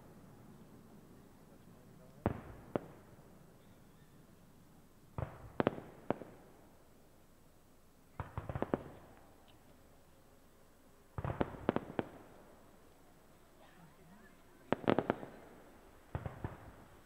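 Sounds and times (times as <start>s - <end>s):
fireworks bursting: 1.5s - 3.5s, 5.1s - 7.0s, 8.1s - 10.0s, 11.0s - 17.0s.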